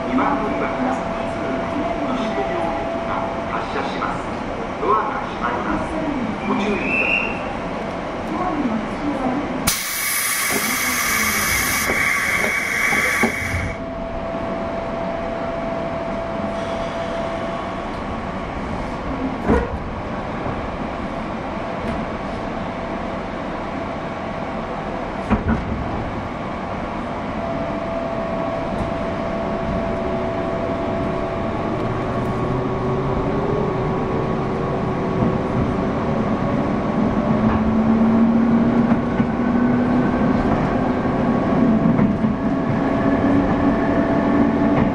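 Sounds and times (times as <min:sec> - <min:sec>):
train motor and wheel noise: 0:00.0 - 0:44.9
rail clicks: 0:09.7 - 0:13.8.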